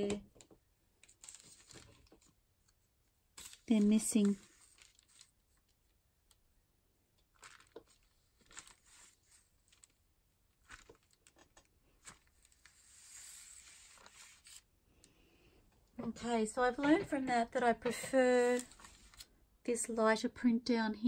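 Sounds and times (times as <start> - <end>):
rice paper rustling: 3.4 - 5.8, 7.3 - 14.7, 18.4 - 19.3.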